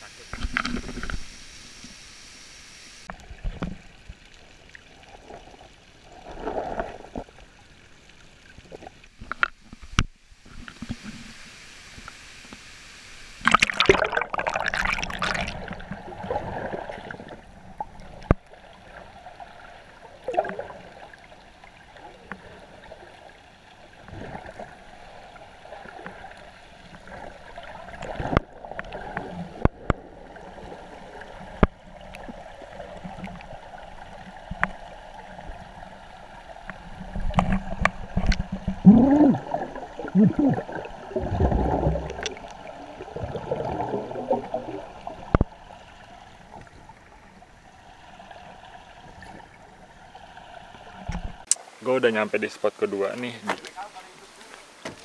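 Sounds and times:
air bubbles gurgling: 13.4s - 19.0s, 20.1s - 21.2s, 27.0s - 33.8s, 36.7s - 45.7s
muffled underwater noise: 38.6s - 41.2s.

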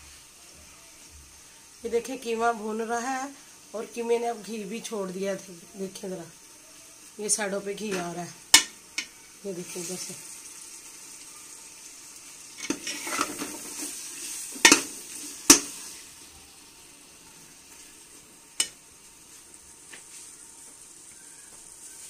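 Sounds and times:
meat sizzling in a pot: 0.0s - 22.0s
metal spoon stirring and scraping: 12.6s - 15.9s.

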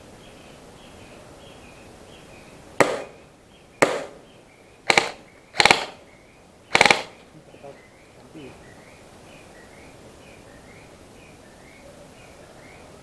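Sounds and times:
airsoft gunshots: 2.8s - 3.2s, 3.8s - 4.2s, 4.9s - 6.0s, 6.7s - 7.2s.

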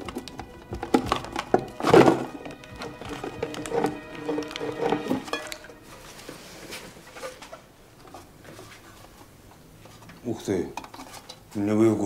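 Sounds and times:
metal tin scraping and tapping: 0.0s - 5.9s, 10.0s - 11.6s.

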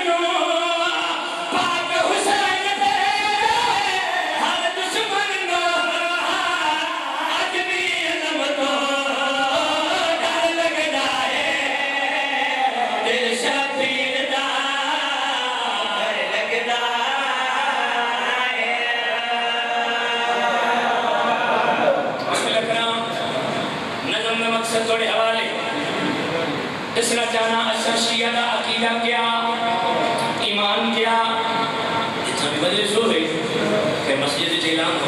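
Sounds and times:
men chanting into microphones: 0.0s - 22.7s.

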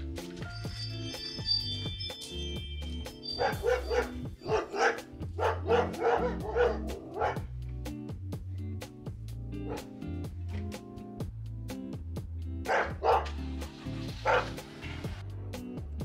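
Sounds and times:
background music: 0.0s - 16.0s
dogs barking: 3.4s - 7.5s, 9.6s - 10.0s, 12.6s - 13.4s, 14.2s - 14.7s.

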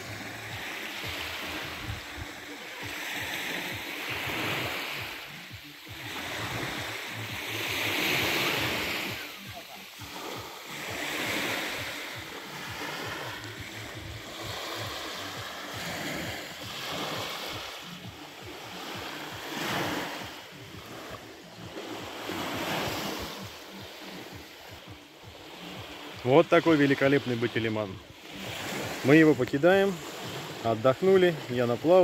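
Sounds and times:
surf washing onto beach: 0.0s - 32.0s.

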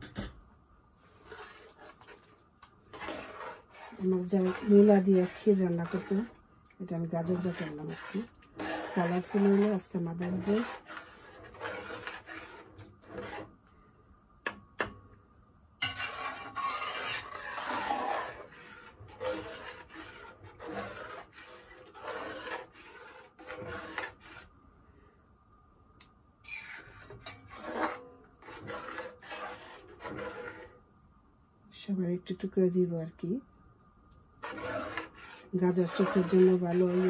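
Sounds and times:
spoon scraping a metal pot: 1.2s - 2.2s, 2.9s - 13.5s, 15.8s - 24.5s, 26.4s - 30.8s, 34.4s - 37.0s.

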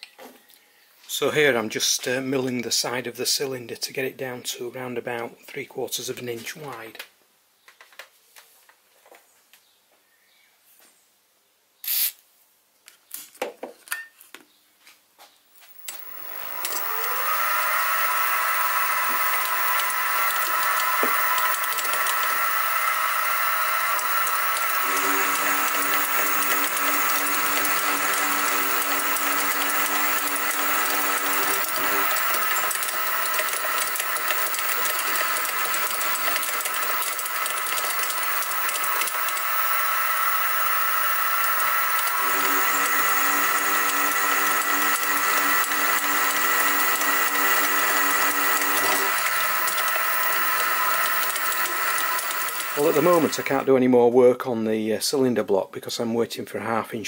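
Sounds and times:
aerosol can squirt: 11.8s - 12.2s
clicks: 15.7s - 53.6s
milling machine spindle whine: 15.7s - 53.7s.

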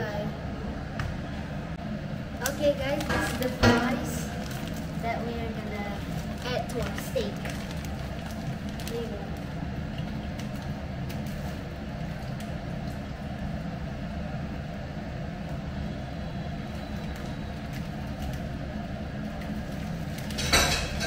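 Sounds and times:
steady low hum: 0.0s - 21.0s
plastic bag crinkling: 2.4s - 12.5s.

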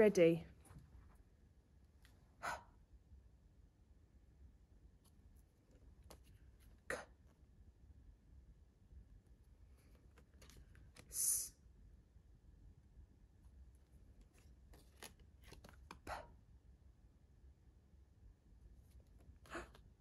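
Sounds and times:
paper cards scraping: 14.2s - 16.0s.

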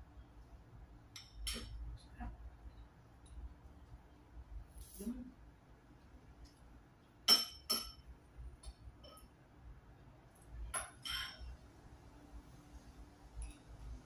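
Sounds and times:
cutlery clinking on ceramic bowl: 7.2s - 8.1s, 9.0s - 9.3s, 10.7s - 11.5s.

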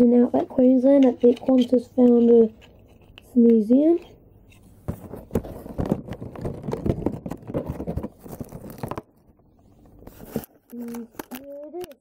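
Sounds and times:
plastic packaging crackling: 5.4s - 9.4s, 10.1s - 12.0s.

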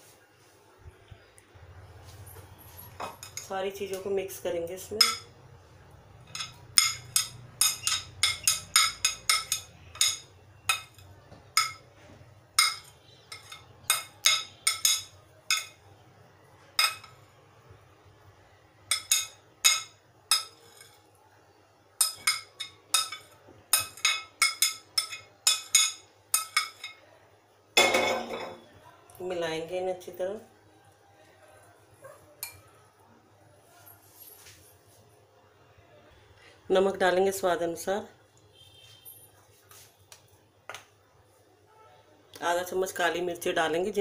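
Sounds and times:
metal spoon clinking on glass: 5.0s - 5.3s, 6.3s - 11.9s, 12.6s - 15.8s, 16.8s - 17.2s, 18.9s - 21.0s, 22.0s - 27.0s.

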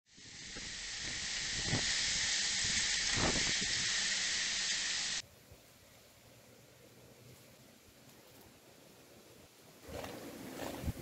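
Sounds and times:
driving rain hiss: 0.1s - 9.8s
wind gusts buffeting microphone: 9.9s - 11.0s.

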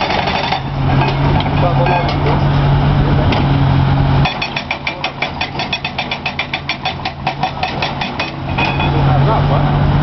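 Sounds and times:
hydraulic breaker hammering rock: 0.0s - 2.3s, 4.2s - 9.0s
excavator engine running: 0.0s - 10.0s.

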